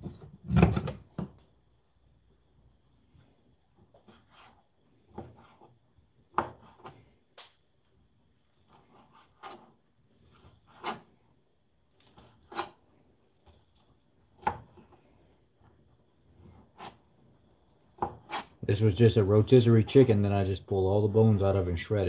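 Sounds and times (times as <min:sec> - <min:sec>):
knife scraping on board: 0:03.9 - 0:07.1, 0:08.5 - 0:11.2, 0:11.9 - 0:12.8, 0:13.4 - 0:17.1, 0:17.8 - 0:18.6
knife chopping on plastic board: 0:05.1 - 0:05.7, 0:06.3 - 0:07.0, 0:10.7 - 0:11.1, 0:14.4 - 0:14.9, 0:17.9 - 0:18.6.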